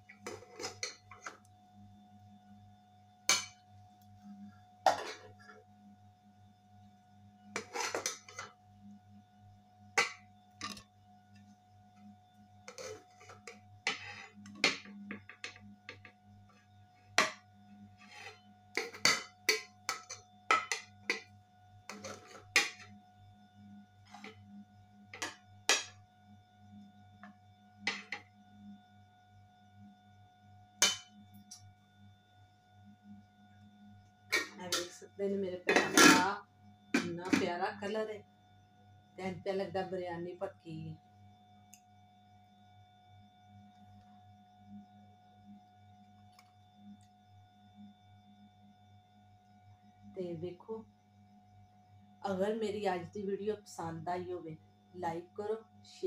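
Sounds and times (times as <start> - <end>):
metal spoon scraping a metal pot: 0.1 - 1.5, 3.3 - 3.6, 4.9 - 5.6, 7.5 - 8.6, 10.0 - 10.9, 12.7 - 15.5, 18.0 - 21.3, 21.9 - 22.9, 24.1 - 24.4, 34.3 - 35.0, 35.6 - 36.4, 37.0 - 37.6.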